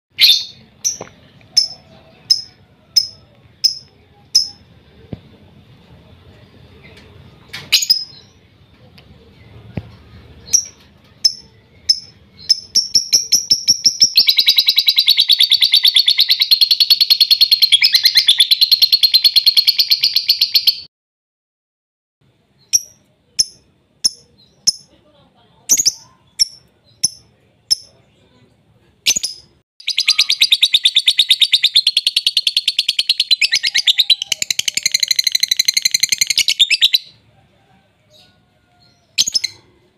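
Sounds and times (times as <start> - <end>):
lovebird chirping and trilling: 0.2 - 4.7, 7.7 - 8.4, 10.4 - 20.9, 22.6 - 24.9, 25.7 - 28.0, 29.0 - 37.2, 38.8 - 39.7.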